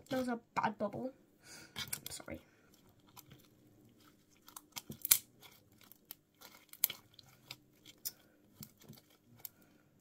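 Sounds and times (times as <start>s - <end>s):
slime sticky clicks and pops: 4.7s - 5.2s.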